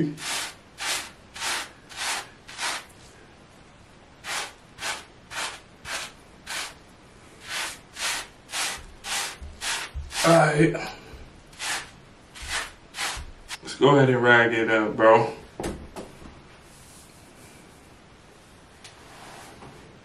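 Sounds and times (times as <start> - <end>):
brush swishing through wet hair: 0.0 - 3.0, 4.2 - 6.8, 7.4 - 10.4, 11.6 - 13.6.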